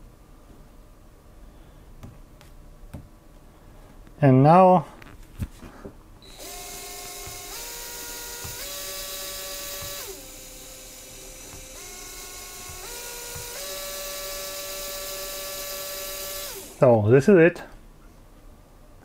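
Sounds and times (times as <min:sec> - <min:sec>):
toy motor gear whine: 0:06.2 - 0:16.8.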